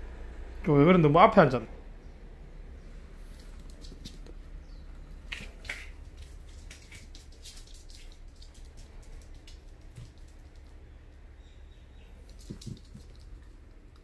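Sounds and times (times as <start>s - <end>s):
faint low hum: 0.0s - 14.0s
dog claws clicking on floor: 3.4s - 4.4s, 5.0s - 11.2s, 12.2s - 14.0s.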